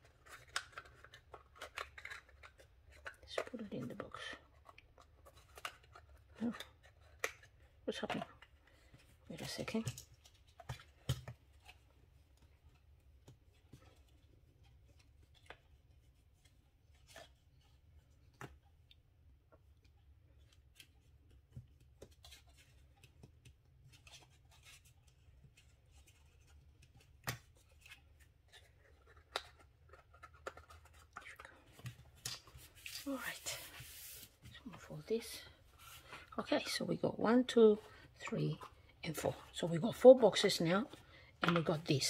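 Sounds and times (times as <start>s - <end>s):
paper boxes clicking and tapping: 0.0s - 8.5s.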